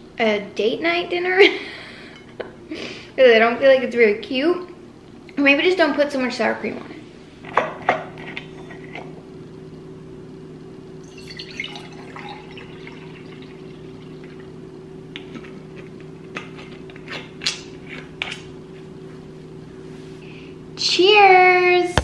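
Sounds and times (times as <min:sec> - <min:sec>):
liquid trickling into glass: 0:11.0 - 0:14.5.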